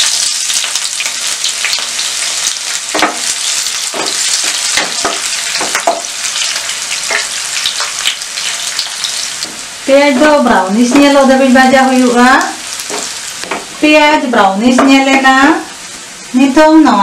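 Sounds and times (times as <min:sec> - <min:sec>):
onions sizzling in hot oil: 0:00.0 - 0:17.0.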